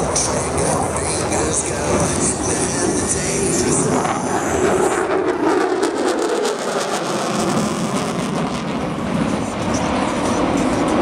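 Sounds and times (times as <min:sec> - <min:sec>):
jet engine roar overhead: 0:00.0 - 0:11.0.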